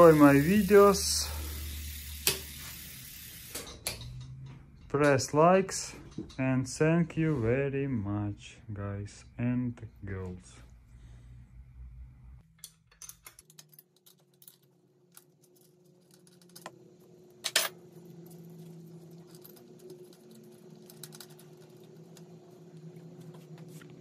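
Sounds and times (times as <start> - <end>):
clicks and rattles of bicycle parts: 12.4 - 16.8.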